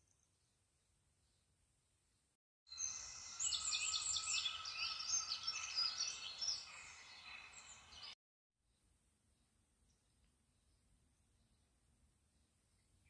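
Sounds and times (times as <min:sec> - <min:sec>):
songbirds chirping and singing: 0:02.7 - 0:08.2.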